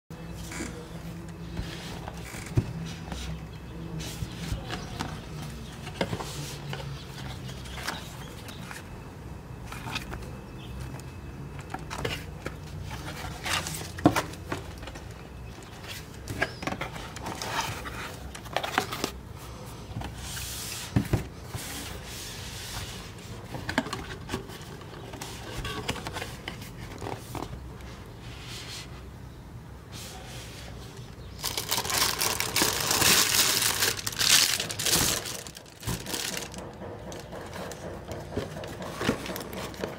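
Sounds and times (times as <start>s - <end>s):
cardboard packaging rustling: 30.5s - 39.9s.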